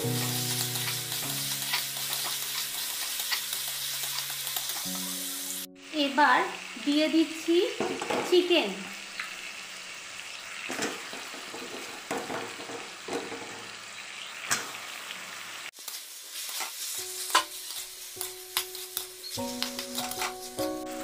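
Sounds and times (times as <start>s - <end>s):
metal spatula scraping pan: 0.0s - 5.2s, 16.4s - 20.7s
chicken sizzling in oil: 0.0s - 21.0s.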